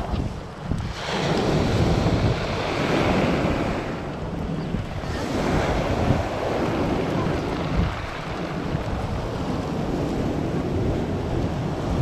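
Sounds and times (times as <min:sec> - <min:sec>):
surf washing on pebble beach: 0:00.0 - 0:12.0
wind buffeting microphone: 0:00.0 - 0:12.0.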